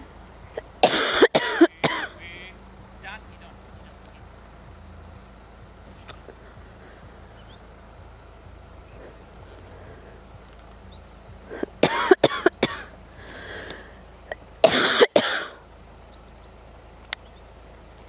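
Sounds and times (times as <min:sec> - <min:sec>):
person's harsh cough-like sounds: 0:00.8 - 0:02.2, 0:11.8 - 0:12.9, 0:14.6 - 0:15.6.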